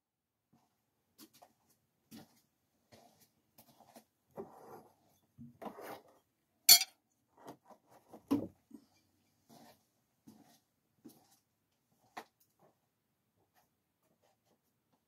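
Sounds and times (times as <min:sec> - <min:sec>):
soft shuffling: 0:00.5 - 0:04.1, 0:08.7 - 0:12.8
knife hitting target metallic clank: 0:06.7 - 0:06.9.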